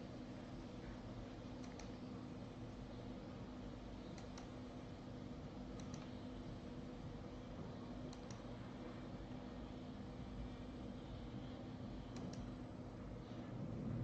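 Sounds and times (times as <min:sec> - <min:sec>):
steady low hum: 0:00.0 - 0:14.0
computer mouse clicking: 0:01.6 - 0:02.0, 0:04.1 - 0:04.6, 0:05.8 - 0:06.2, 0:08.1 - 0:08.5, 0:12.1 - 0:12.6.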